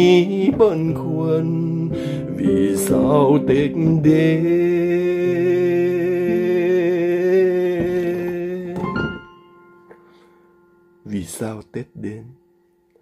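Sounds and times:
man singing a long note: 0.0 - 9.0.

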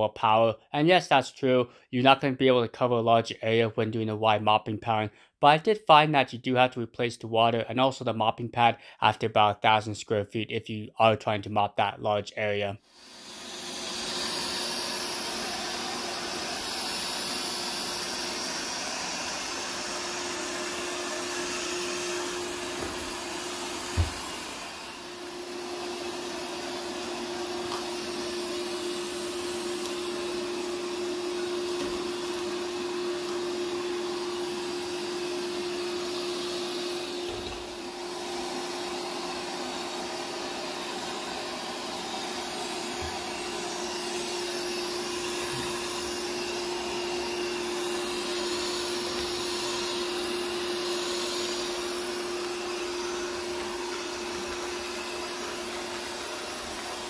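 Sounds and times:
robot vacuum whirring: 12.9 - 57.0.

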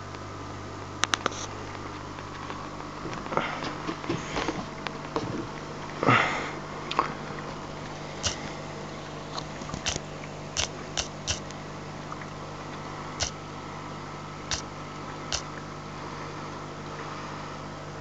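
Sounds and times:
aquarium equipment humming: 0.0 - 18.0
sharp clicks: 8.2 - 8.5, 9.4 - 11.6, 13.2 - 13.4, 14.5 - 14.7, 15.3 - 15.6.

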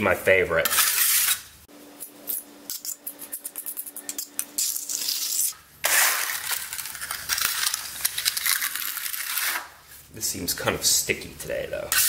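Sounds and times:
steel trowel scraping concrete: 0.6 - 1.5, 4.6 - 9.7.

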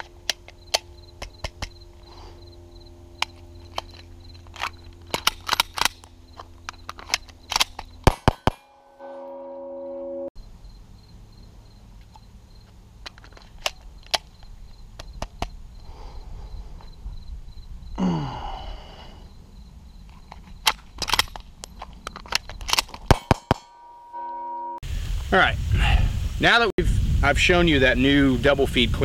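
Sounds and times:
pistol metallic clicks: 0.0 - 1.8, 3.2 - 8.6, 20.6 - 23.7
wind rumble on microphone: 14.5 - 18.0, 24.8 - 29.0.

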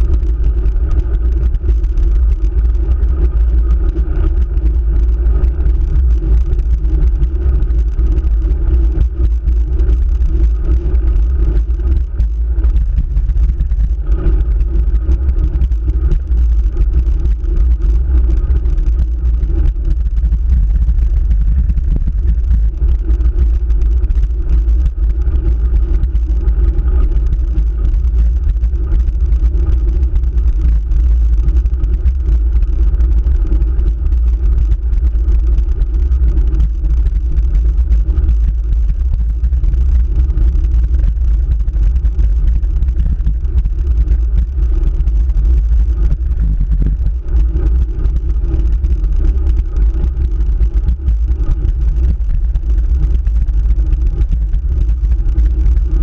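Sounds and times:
road vibration rumble: 0.0 - 56.0.

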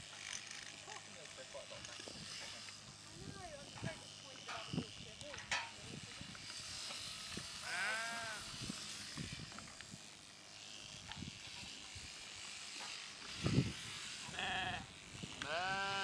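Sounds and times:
sheep bleating: 7.6 - 8.5, 14.3 - 16.0.

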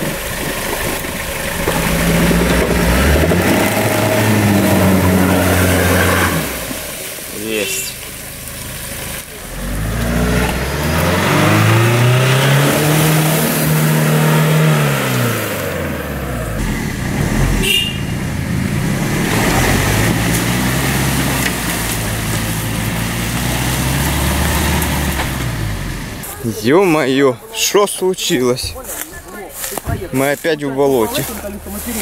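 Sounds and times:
engine revving hard: 1.6 - 6.9, 9.4 - 26.2.

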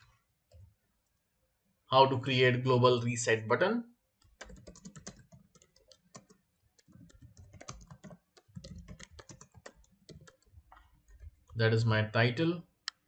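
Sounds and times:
keyboard typing clicks: 4.2 - 11.6.

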